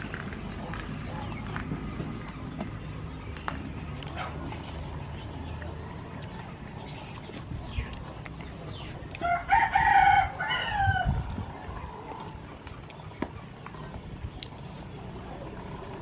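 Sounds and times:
rooster crowing: 9.2 - 11.2.

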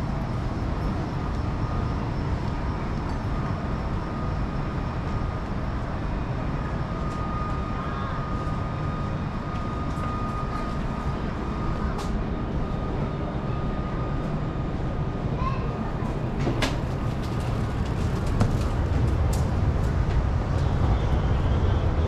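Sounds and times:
faint high whine: 0.0 - 15.3
low city rumble: 0.0 - 22.0.

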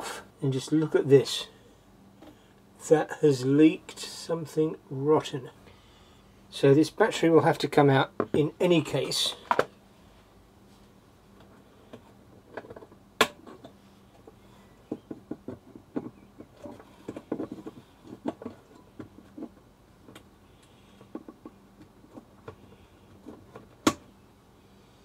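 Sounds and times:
small clicks taps and scrapes: 11.4 - 24.0.

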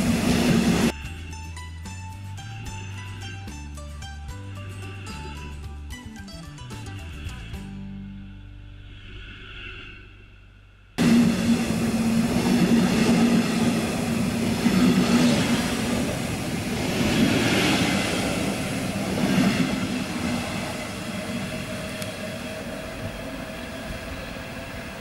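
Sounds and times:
train wheels on rails: 0.0 - 1.0, 11.0 - 25.0.

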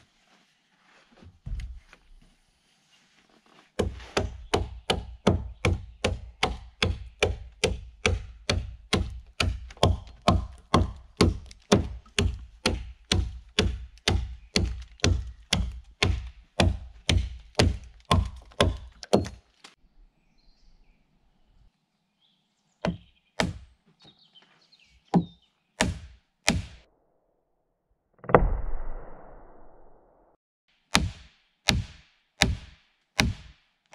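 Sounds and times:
axe knocking wooden peg: 4.2 - 19.4.

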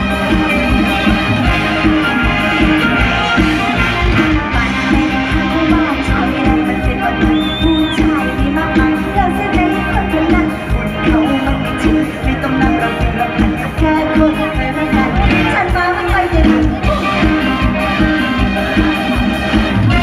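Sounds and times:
live band music over pa: 0.0 - 20.0
person singing: 0.0 - 20.0
steady drum beat: 0.0 - 20.0
short high whistle tone: 7.3 - 8.0.

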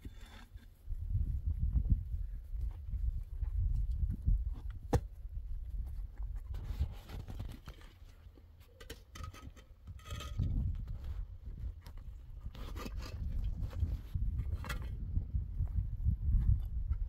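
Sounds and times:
concrete blocks knocking and scraping: 0.0 - 0.8, 6.3 - 15.2.

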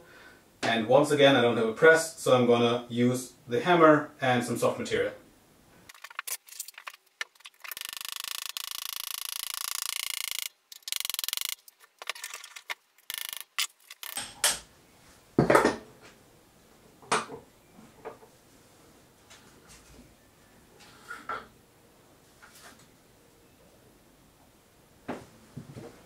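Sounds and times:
sharp clicks: 7.2 - 11.7, 13.0 - 14.3.

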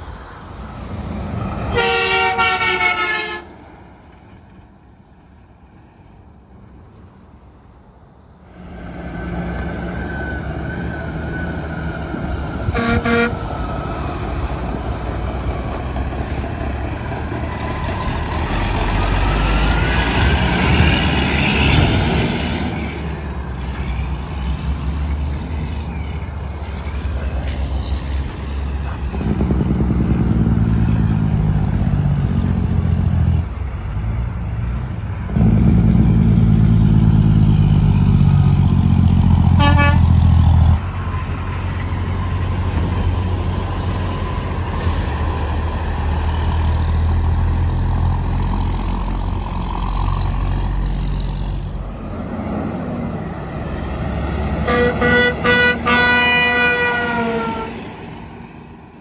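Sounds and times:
heavy trucks passing: 0.0 - 59.0
truck air horn blasts: 1.7 - 3.6, 12.6 - 13.5, 39.5 - 40.2, 54.6 - 57.9.

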